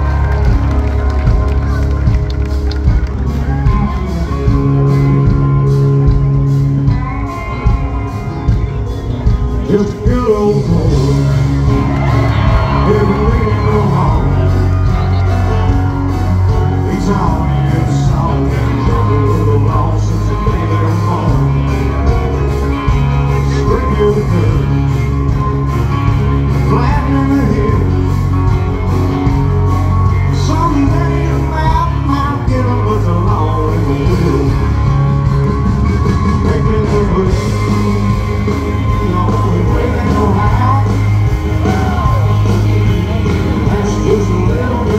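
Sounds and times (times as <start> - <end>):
live country band: 0.0 - 44.9
man singing into a microphone: 9.6 - 15.0, 16.6 - 22.0, 23.3 - 25.0, 26.5 - 28.2, 30.3 - 35.0, 36.2 - 44.9.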